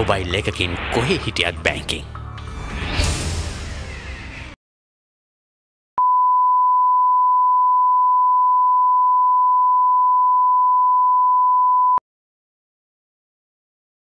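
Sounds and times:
commercial soundtrack: 0.0s - 4.6s.

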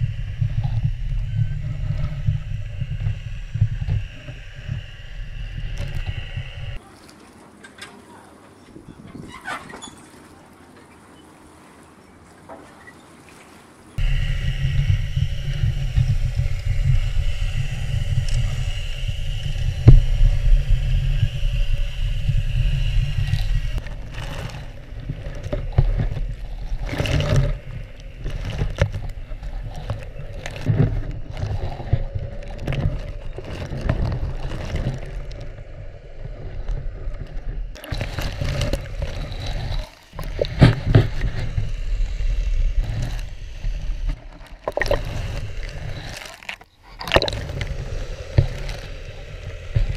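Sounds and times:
high steady hum: 0.0s - 6.8s, 14.0s - 46.3s, 47.0s - 49.9s
low underwater rumble: 0.0s - 6.8s, 14.0s - 49.9s
underwater knocks and clicks: 14.0s - 49.9s.

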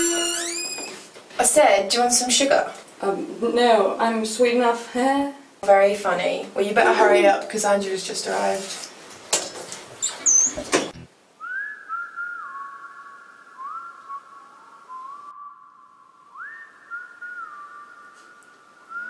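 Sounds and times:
clattering and knocking: 9.3s - 10.0s
slow whistled melody: 11.4s - 19.0s.

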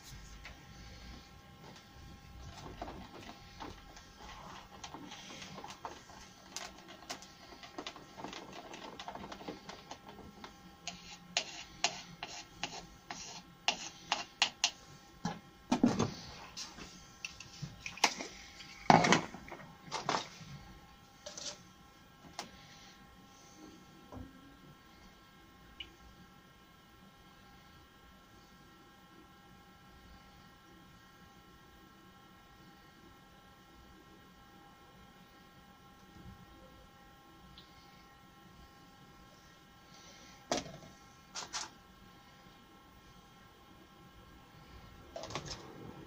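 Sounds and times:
stir stick scraping plastic cup: 2.4s - 14.8s.

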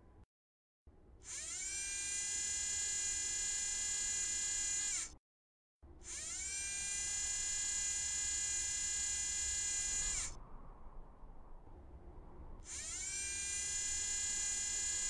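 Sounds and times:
electric motor whining: 1.3s - 5.1s, 6.0s - 10.4s, 12.7s - 15.0s.

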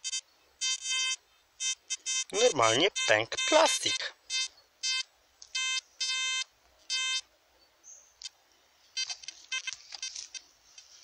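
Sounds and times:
metal detector beeping: 0.0s - 7.2s, 8.9s - 10.4s
quiet chirps and clicks: 8.1s - 11.0s.

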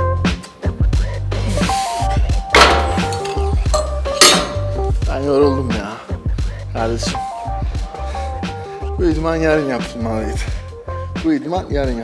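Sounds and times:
weight plates clanking down: 2.5s - 4.9s.

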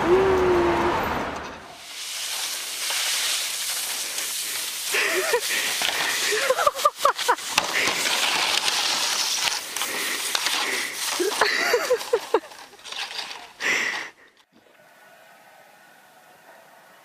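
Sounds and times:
people calling out: 0.0s - 1.2s
plastic sled sliding over snow: 1.4s - 14.7s.

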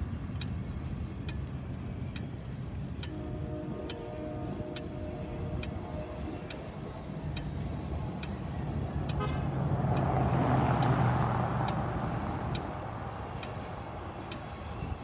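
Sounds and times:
pickup truck driving past: 8.6s - 14.1s.

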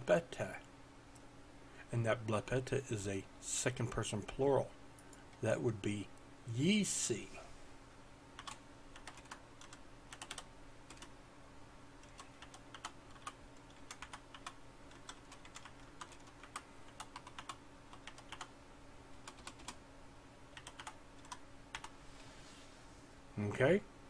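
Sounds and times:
keyboard typing: 8.4s - 11.1s, 12.0s - 18.5s, 19.2s - 19.8s, 20.5s - 21.9s.

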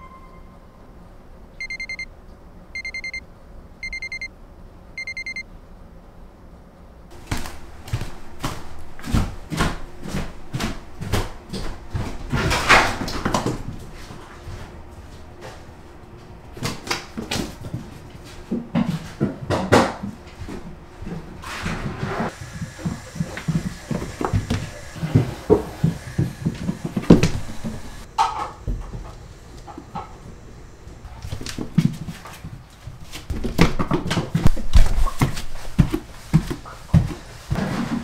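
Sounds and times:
alarm clock beeping: 1.6s - 2.1s, 2.8s - 3.2s, 3.8s - 4.3s, 5.0s - 5.4s
footsteps on wooden floor: 7.1s - 15.7s, 22.2s - 29.1s, 31.3s - 38.0s
knocks and thumps: 22.4s - 30.1s.

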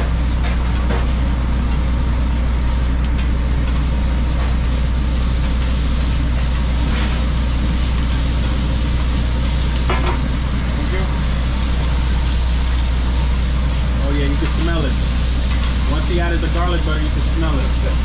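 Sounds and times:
low machine hum: 0.0s - 18.0s
meat and onions sizzling: 1.0s - 18.0s
spatula scraping griddle: 5.4s - 10.2s, 13.7s - 18.0s.

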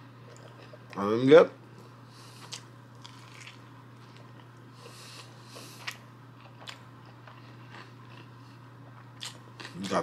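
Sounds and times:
steady low hum: 0.0s - 10.0s
person chewing: 2.4s - 10.0s.

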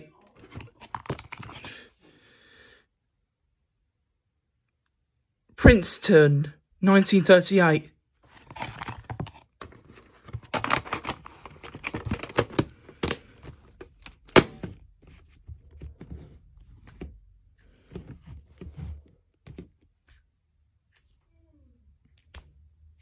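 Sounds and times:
plastic cases clicking and knocking: 8.5s - 14.9s.

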